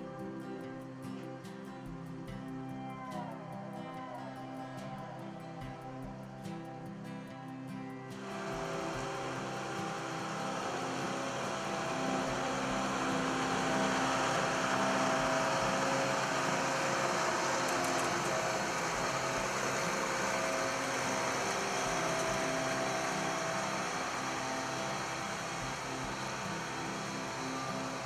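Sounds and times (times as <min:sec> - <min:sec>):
diesel engine running: 0:08.2 - 0:28.0.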